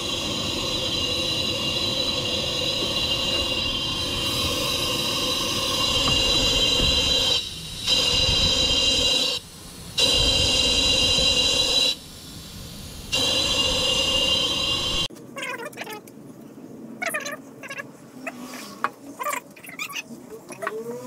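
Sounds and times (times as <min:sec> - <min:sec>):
compressed air hissing: 0:00.0 - 0:15.1.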